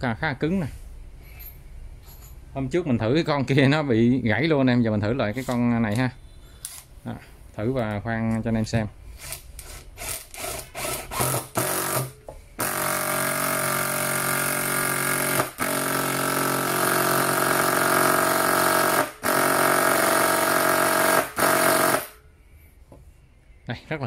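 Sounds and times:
impact driver hammering screw: 0:09.2 - 0:22.2.

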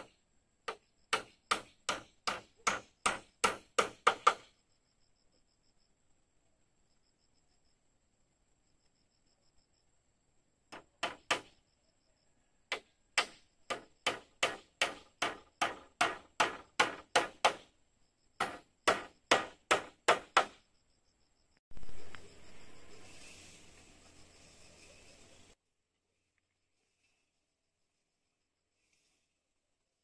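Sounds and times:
hand tool striking wood: 0:00.7 - 0:04.5, 0:10.7 - 0:11.5, 0:12.7 - 0:17.7, 0:18.4 - 0:20.6.

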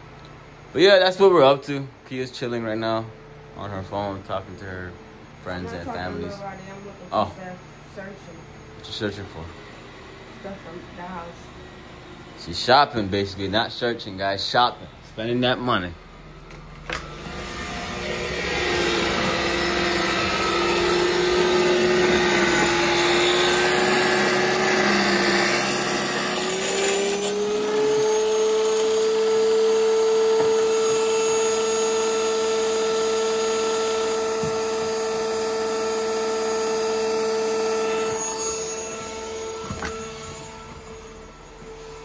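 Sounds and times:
tile saw motor whining: 0:16.6 - 0:42.0
saw cutting tile: 0:17.0 - 0:42.0.

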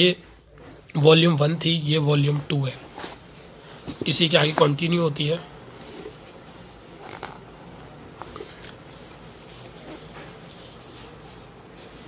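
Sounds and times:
book pages rustling: 0:02.3 - 0:05.0, 0:05.7 - 0:12.0.

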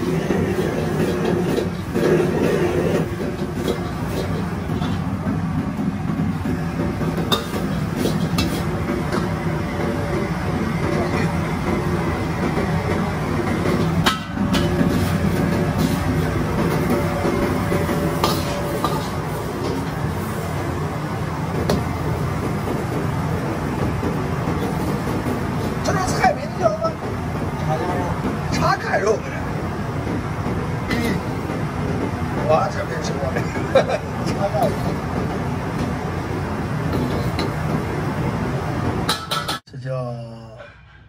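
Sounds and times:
food sizzling in a wok: 0:00.0 - 0:26.6
gas burner rushing: 0:00.0 - 0:39.7.

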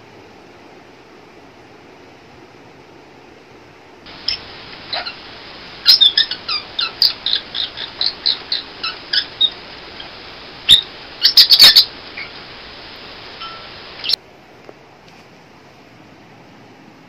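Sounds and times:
parrot chirping: 0:04.1 - 0:14.2.

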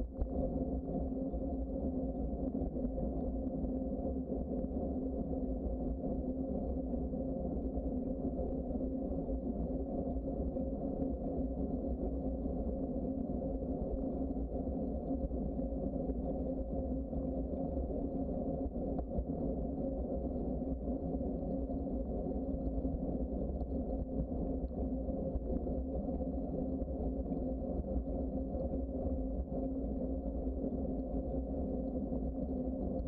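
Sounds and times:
constant low hum: 0:00.0 - 0:33.0.

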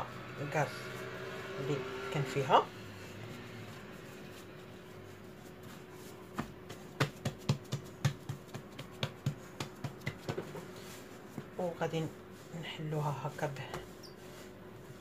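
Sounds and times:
hands slapping dough: 0:03.7 - 0:11.6.

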